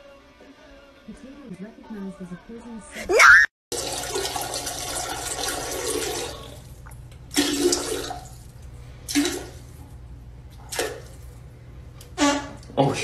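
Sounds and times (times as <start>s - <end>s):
water rushing in toilet bowl: 3.7s - 6.7s, 7.3s - 8.4s, 9.1s - 9.7s.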